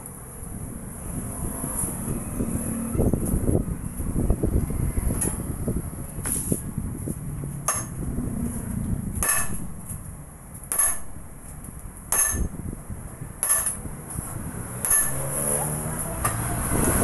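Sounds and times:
heavy metal-on-metal blows: 0:07.6 - 0:17.0.

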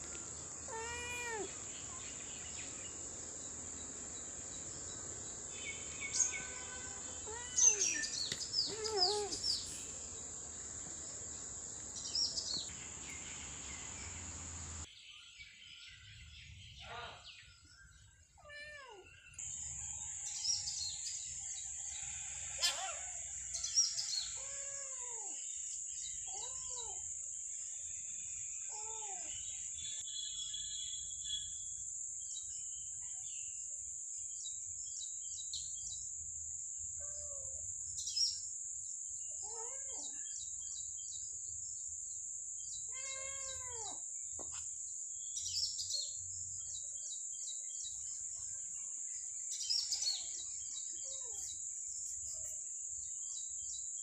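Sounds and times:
bird chirps: 0:00.1 - 0:19.6.

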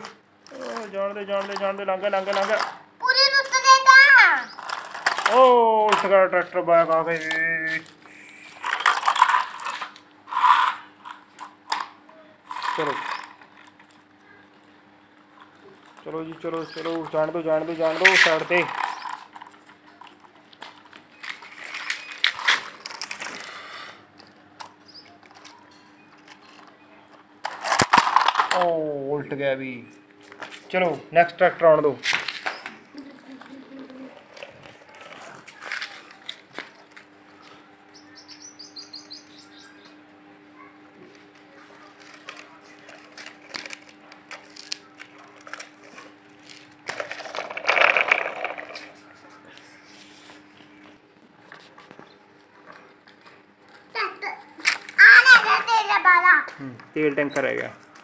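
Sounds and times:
toy wheels scraping and rattling: 0:00.0 - 0:14.0, 0:15.4 - 0:24.0, 0:27.4 - 0:28.8, 0:32.0 - 0:37.0, 0:41.1 - 0:50.4.

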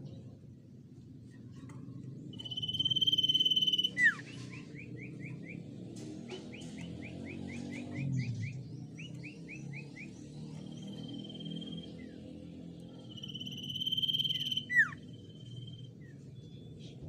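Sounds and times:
bird singing whistles and chirps: 0:02.3 - 0:17.0.

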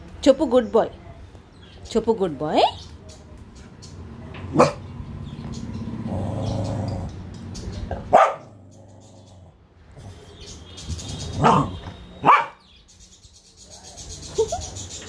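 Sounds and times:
small dog barking sharply: 0:04.5 - 0:04.8, 0:08.1 - 0:08.6, 0:11.4 - 0:12.6.

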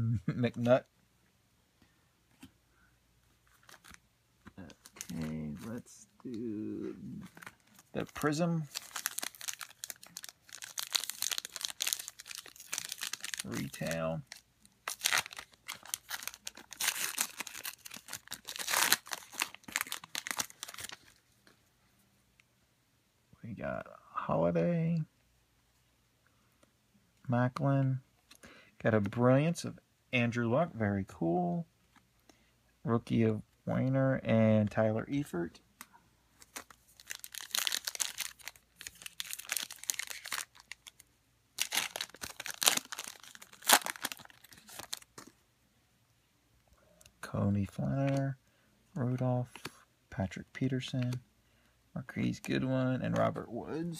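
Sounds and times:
foil wrapper tearing and crinkling: 0:08.2 - 0:21.0, 0:36.4 - 0:41.0, 0:41.6 - 0:45.2.

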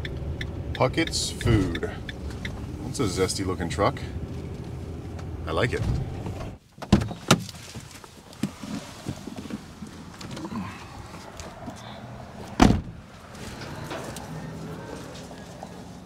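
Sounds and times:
van door shutting thump: 0:12.6 - 0:13.0.

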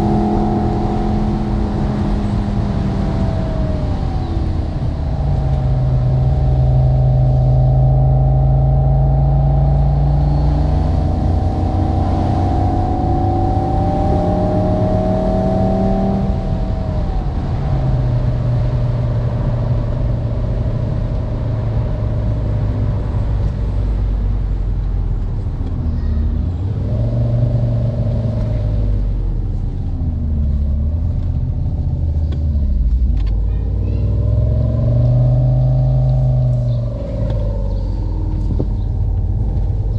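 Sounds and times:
simulated sports car engine: 0:00.0 - 0:39.9.

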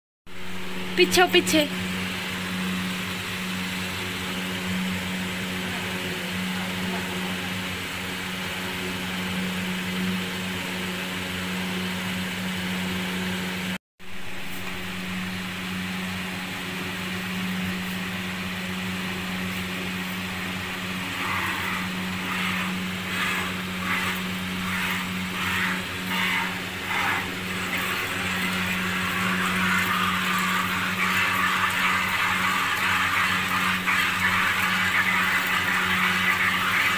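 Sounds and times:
low machine hum with hiss: 0:00.3 - 0:36.9.

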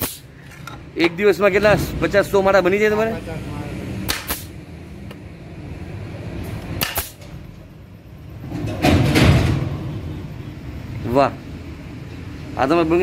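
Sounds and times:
nail gun firing: 0:00.0 - 0:00.2, 0:04.1 - 0:04.5, 0:06.8 - 0:07.2.

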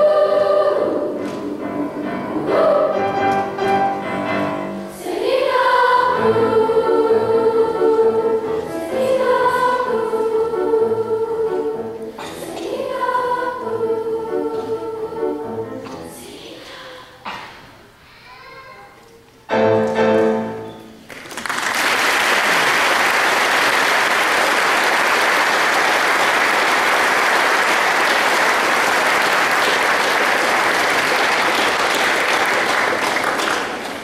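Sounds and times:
choir singing final chord: 0:00.0 - 0:16.4
audience applause: 0:21.1 - 0:34.0.

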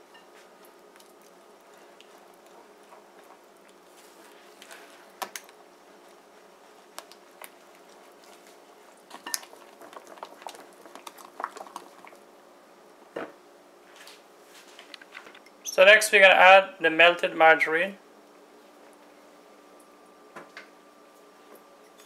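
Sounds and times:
faint steady hum: 0:00.0 - 0:22.0
spatula stirring batter squelching: 0:05.9 - 0:12.2.

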